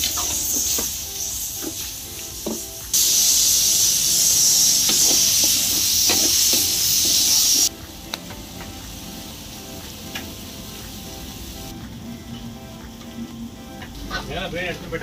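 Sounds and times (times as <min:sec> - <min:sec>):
chicken sizzling in a pan: 0:00.0 - 0:07.7.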